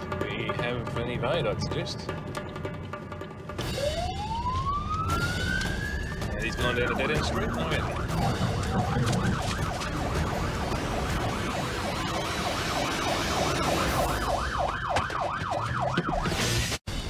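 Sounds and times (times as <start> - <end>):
engine and road rumble: 0.0 - 16.9
police siren yelping: 3.6 - 16.6.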